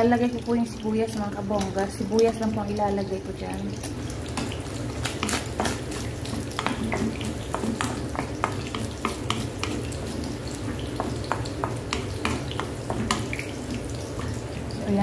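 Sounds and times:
food sizzling in oil: 0.0s - 15.0s
wooden spoon scraping a pan: 4.2s - 14.4s.

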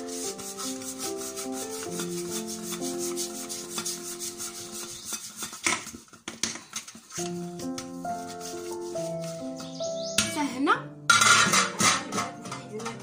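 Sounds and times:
background music with held notes: 0.0s - 5.2s, 7.0s - 13.0s
fingers brushing cake pan: 0.0s - 10.1s.

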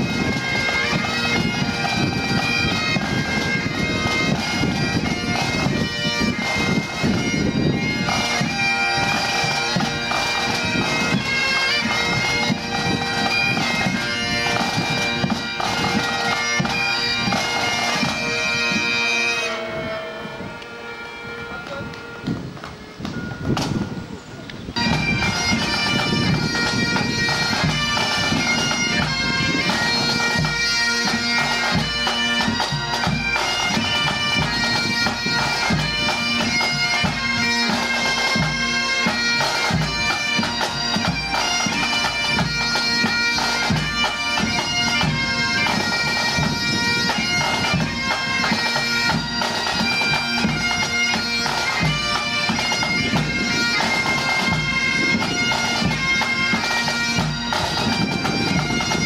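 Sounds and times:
bagpipes playing: 0.0s - 59.0s.

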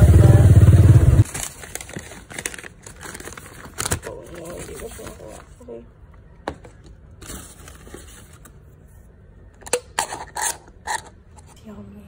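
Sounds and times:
paper bag rustling: 1.2s - 5.6s.

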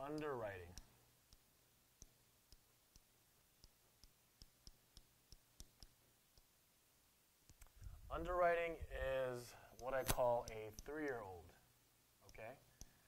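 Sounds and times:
stylus tapping on glass screen: 2.0s - 6.5s.

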